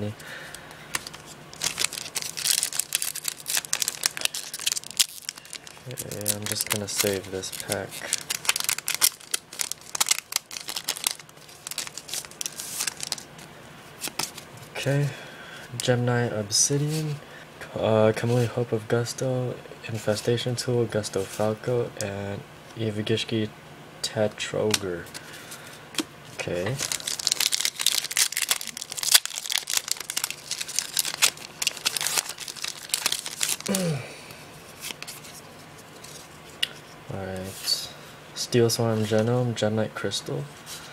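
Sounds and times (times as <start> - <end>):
foil wrapper crinkling: 0.9 - 14.4, 26.7 - 33.8.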